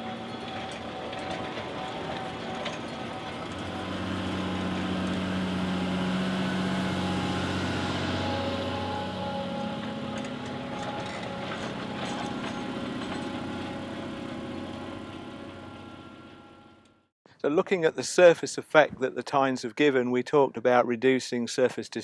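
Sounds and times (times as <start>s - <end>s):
tractor engine running: 0.0s - 17.1s.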